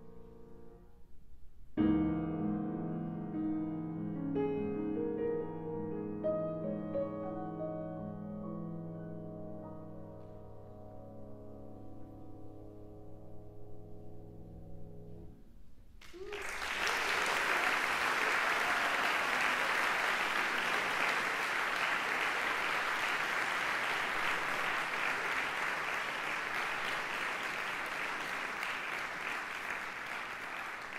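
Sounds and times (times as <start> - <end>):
audience applause: 16.0 - 30.9.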